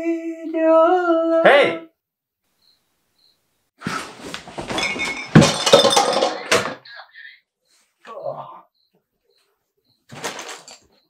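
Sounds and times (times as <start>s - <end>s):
rustling bedclothes: 3.8s - 6.3s
clinks: 4.7s - 6.8s.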